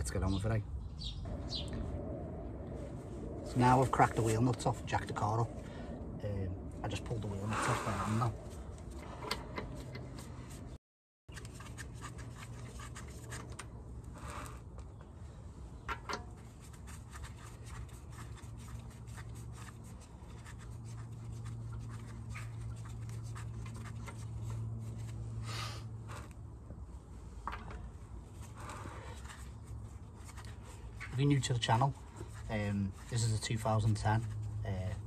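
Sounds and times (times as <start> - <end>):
steady low hum: 0.0 - 10.8
wheel nuts scraping: 11.3 - 14.8.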